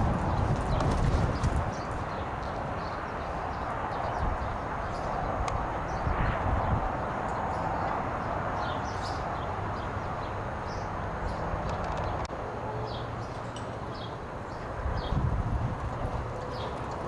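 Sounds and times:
horse hoofbeats on soft dirt: 0.0s - 2.0s.

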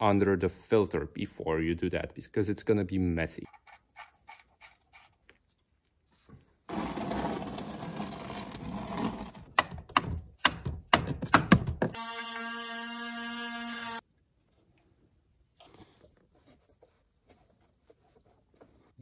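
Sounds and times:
plastic pan scraping on concrete: 6.7s - 9.6s
sharp knocks: 9.6s - 12.0s.

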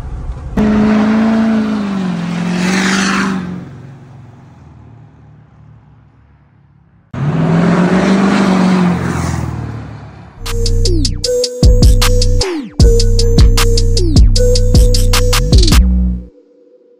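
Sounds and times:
diesel truck driving past: 0.0s - 10.4s
music: 10.4s - 16.9s.

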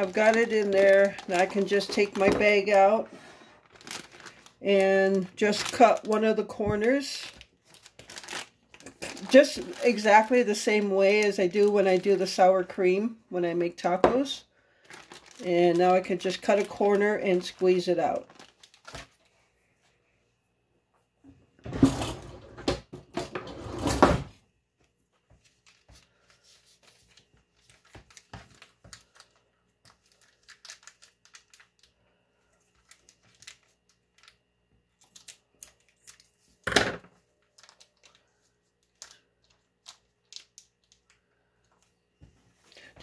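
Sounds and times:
plastic bag crinkling: 0.0s - 12.8s, 14.7s - 19.3s, 25.4s - 36.6s, 37.2s - 41.2s.

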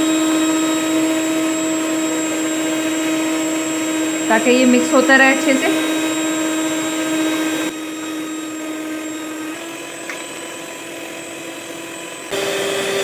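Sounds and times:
stand mixer motor whining: 0.0s - 13.0s.

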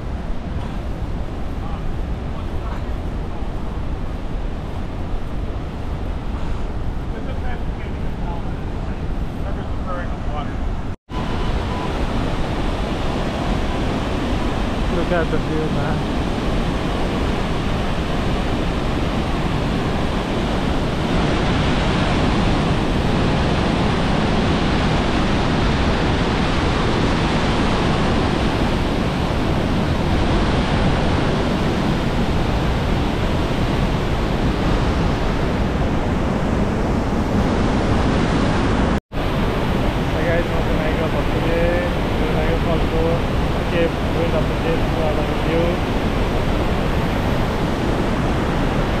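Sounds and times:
waterfall rushing: 37.3s - 49.0s.

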